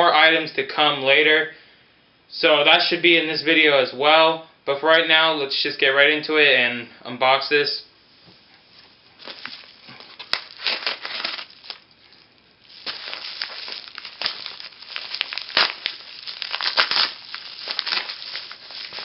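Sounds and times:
paper mailer crinkling and ripping: 0:09.2 - 0:19.0.

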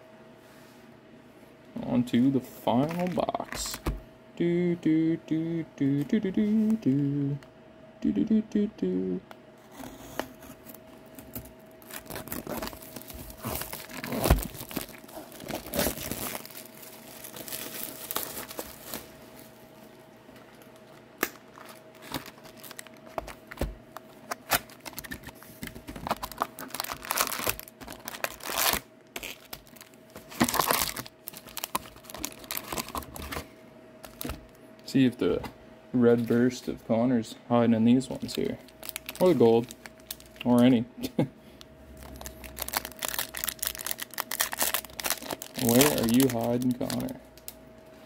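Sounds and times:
plastic and cardboard crinkling: 0:09.7 - 0:19.6, 0:20.4 - 0:34.4, 0:38.2 - 0:40.6, 0:42.0 - 0:47.5.

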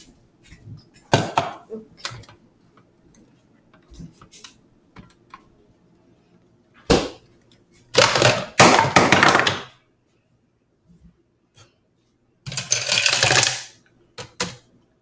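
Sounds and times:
loud plastic clattering: 0:08.0 - 0:09.7, 0:12.5 - 0:13.8.

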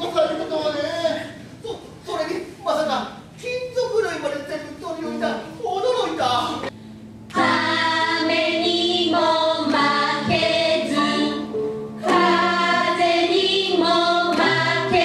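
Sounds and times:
voices singing together: 0:07.3 - 0:15.0.

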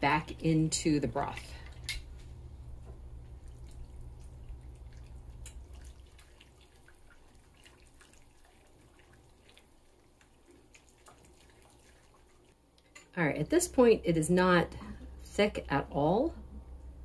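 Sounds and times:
low hum: 0:00.0 - 0:06.0, 0:13.4 - 0:17.0
liquid sloshing: 0:03.2 - 0:12.6.

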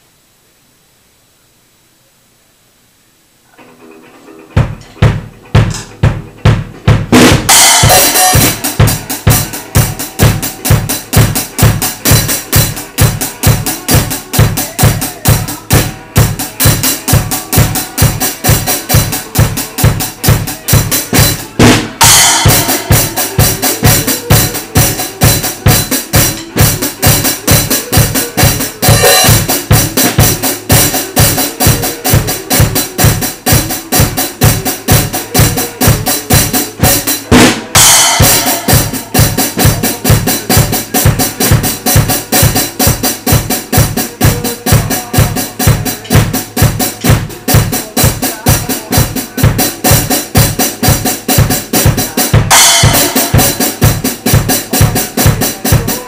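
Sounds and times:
recorded song: 0:00.0 - 0:56.0
acoustic drum kit playing a beat: 0:03.6 - 0:56.0
cymbal crashes: 0:07.2 - 0:11.4, 0:21.8 - 0:27.2, 0:37.4 - 0:39.7, 0:52.5 - 0:54.2.

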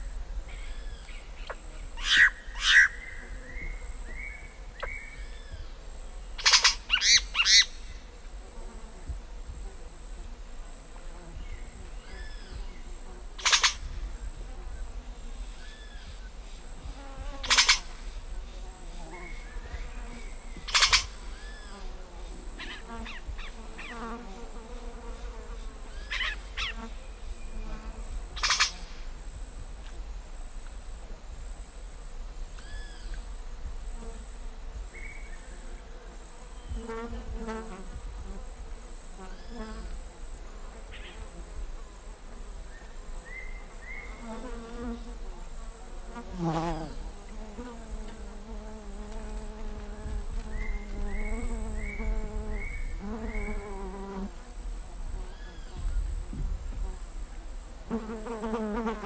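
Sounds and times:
high insect drone: 0:00.0 - 0:59.0
low wavering insect buzz: 0:00.0 - 0:59.0
birds calling: 0:19.2 - 0:21.8.

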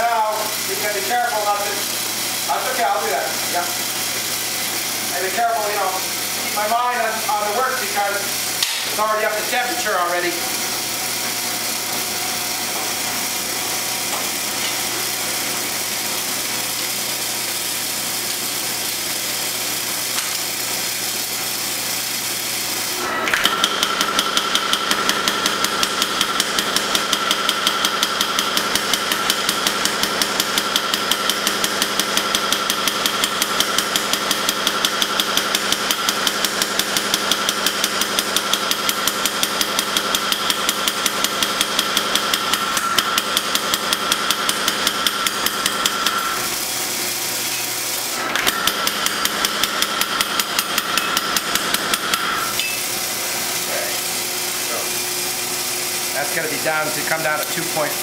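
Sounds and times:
power hammer striking hot steel: 0:08.5 - 0:09.1, 0:20.1 - 0:20.5, 0:23.2 - 0:46.2, 0:47.1 - 0:53.0.

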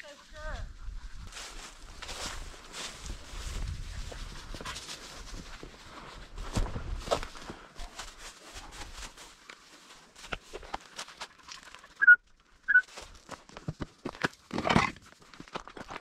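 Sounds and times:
footsteps crunching through dry grass: 0:00.0 - 0:12.0, 0:12.8 - 0:13.8
high whistle-like toots: 0:12.0 - 0:12.9.

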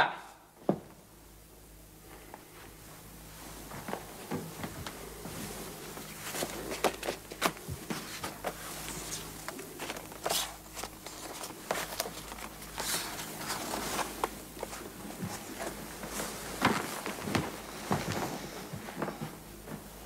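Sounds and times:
paper and photos rustling: 0:03.7 - 0:18.5.

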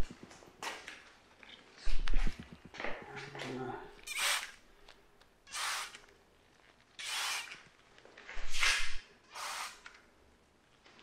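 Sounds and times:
spray bottle hissing sprays: 0:05.5 - 0:06.0, 0:08.6 - 0:09.9.

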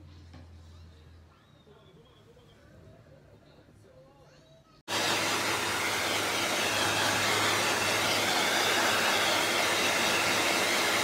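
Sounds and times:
hair dryer blowing: 0:04.9 - 0:11.0.

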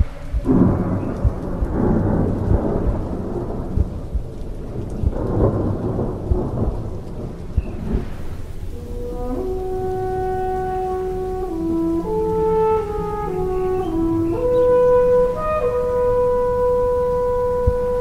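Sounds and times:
low heartbeat thumps: 0:00.0 - 0:08.8
rain: 0:00.0 - 0:18.0
thunder rolling: 0:00.0 - 0:18.0.

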